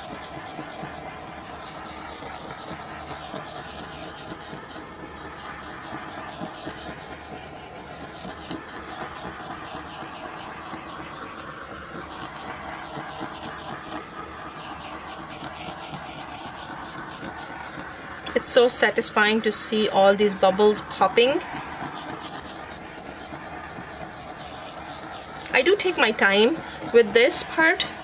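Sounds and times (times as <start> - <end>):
torch flame hissing: 0.0 - 28.0.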